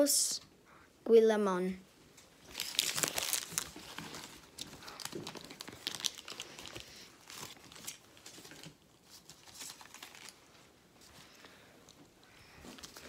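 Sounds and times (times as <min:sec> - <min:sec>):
cards and wrapper crinkling: 0:02.4 - 0:10.5.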